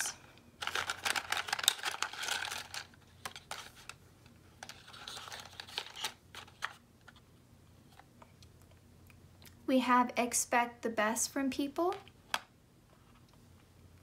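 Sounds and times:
matchbox rustling: 0.6s - 4.0s, 4.6s - 7.2s.

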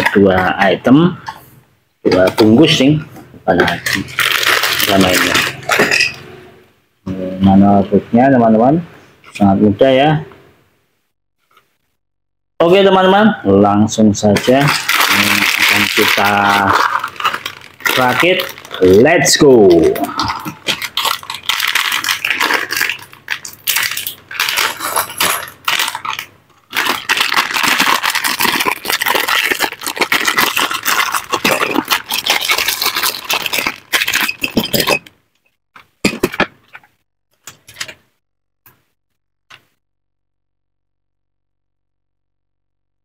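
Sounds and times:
plastic brick pieces rattling: 0.0s - 0.6s, 3.5s - 6.2s, 14.4s - 35.1s
plastic bags crinkling: 0.0s - 0.8s, 3.5s - 6.3s, 14.3s - 35.1s.

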